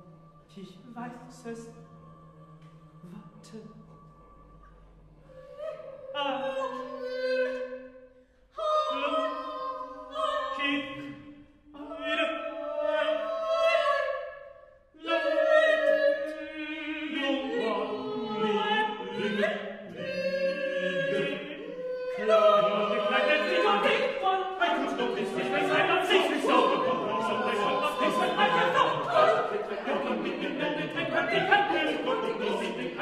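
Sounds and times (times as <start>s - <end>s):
a cappella ensemble singing: 0.0s - 33.0s.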